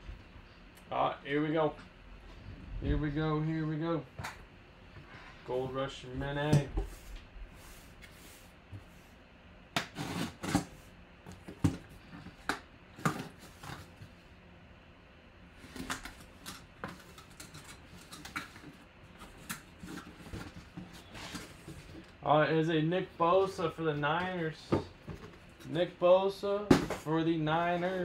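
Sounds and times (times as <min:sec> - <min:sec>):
cardboard rustles: 0:15.6 - 0:22.2.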